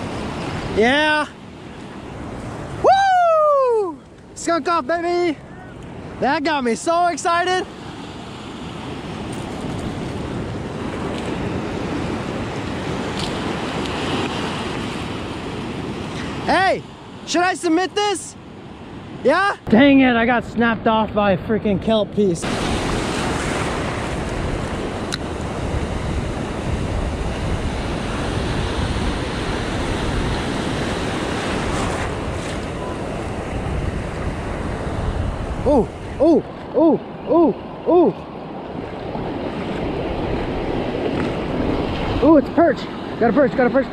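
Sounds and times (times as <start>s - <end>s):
ocean surf washing onto beach: 0.0s - 21.2s, 22.1s - 43.9s
wind buffeting microphone: 20.3s - 43.9s.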